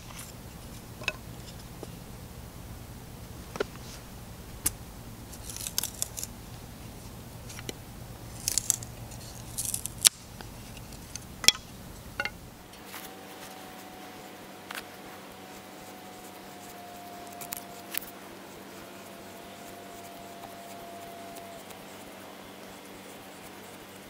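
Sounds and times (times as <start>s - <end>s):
knife shaving wood: 3.2s - 12.0s, 14.7s - 24.0s
wood cracking: 4.6s - 6.4s, 7.4s - 12.4s.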